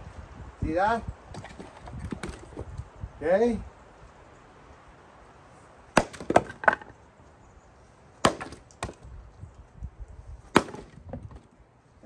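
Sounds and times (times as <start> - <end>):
axe chopping wood: 1.4 - 2.6, 6.0 - 6.9, 8.2 - 9.1, 10.5 - 11.4.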